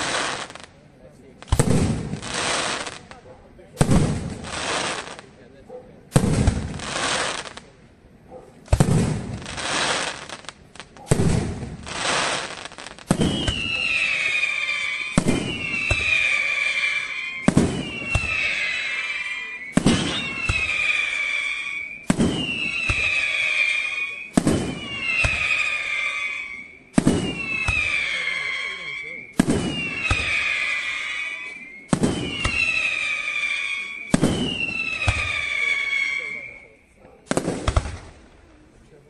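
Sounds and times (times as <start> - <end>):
fireworks bursting: 0.0 - 5.5, 6.1 - 7.7, 8.6 - 38.6
falling whistle: 13.1 - 37.0.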